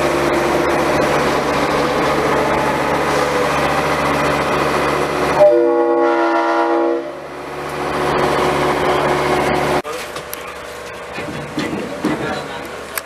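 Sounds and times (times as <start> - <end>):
train rumbling on rails: 0.0 - 13.0
train horn chord: 5.3 - 7.3.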